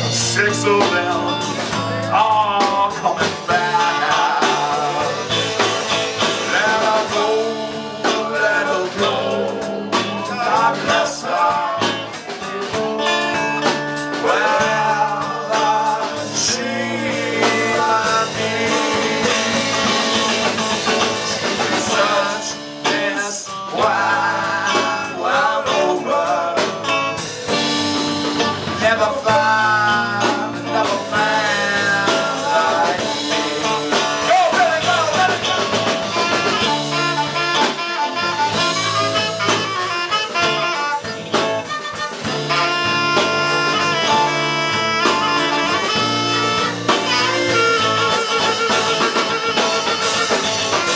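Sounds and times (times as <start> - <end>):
live blues band playing: 0.0 - 50.9
saxophone: 0.0 - 50.9.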